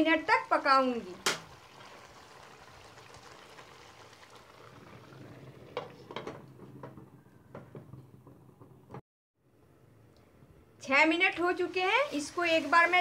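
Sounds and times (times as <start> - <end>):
chicken sizzling in a pan: 1.0 - 5.6, 11.6 - 13.0.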